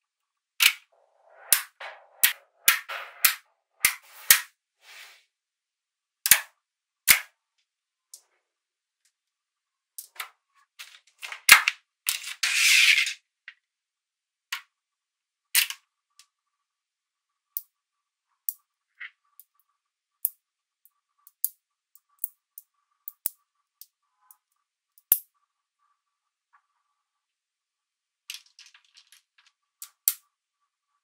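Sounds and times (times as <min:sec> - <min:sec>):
balls scraping rattle: 0:00.6 - 0:04.5, 0:12.1 - 0:13.2, 0:28.3 - 0:29.6.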